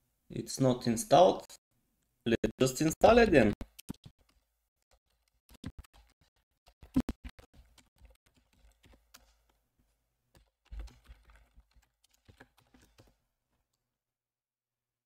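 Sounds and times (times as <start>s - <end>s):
typing on computer keyboard: 3.6s - 9.6s, 10.3s - 13.2s.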